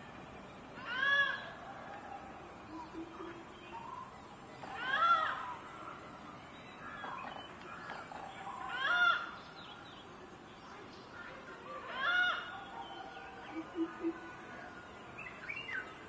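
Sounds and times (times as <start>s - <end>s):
hornbill calling: 13.4s - 14.4s.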